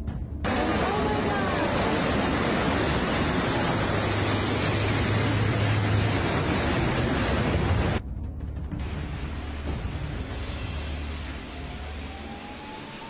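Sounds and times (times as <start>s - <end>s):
low hum: 0.0s - 13.0s
floodwater rushing: 0.5s - 8.0s, 8.8s - 13.0s.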